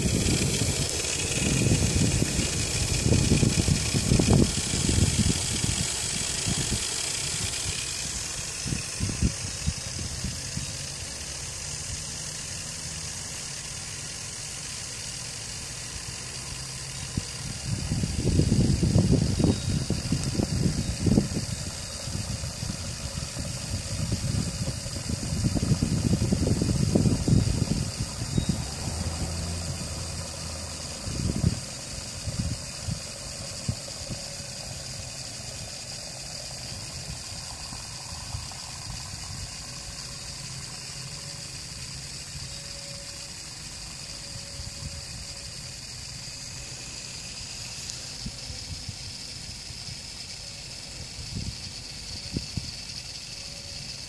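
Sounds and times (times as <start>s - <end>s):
low rumbling gusts: 0.0s - 11.0s, 17.1s - 40.9s
aerosol can hissing: 0.0s - 12.2s.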